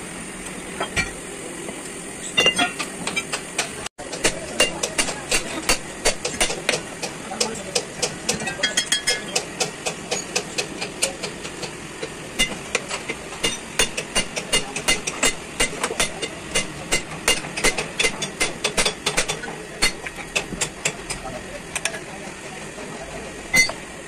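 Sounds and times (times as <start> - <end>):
hammer striking metal: 2.4 - 11.2, 12.4 - 21.0, 23.5 - 23.8.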